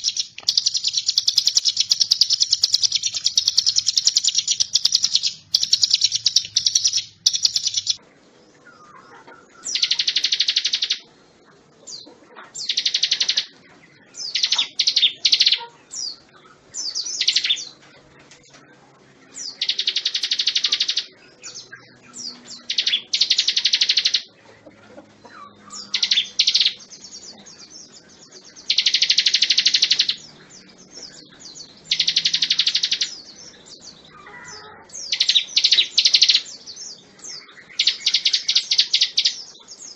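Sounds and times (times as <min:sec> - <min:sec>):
soft bird chirps: 0:00.0 - 0:39.9.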